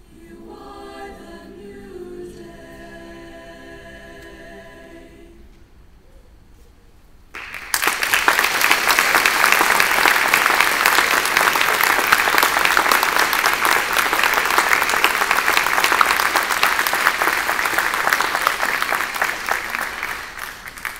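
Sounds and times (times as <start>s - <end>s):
audience clapping: 7.3s - 20.9s.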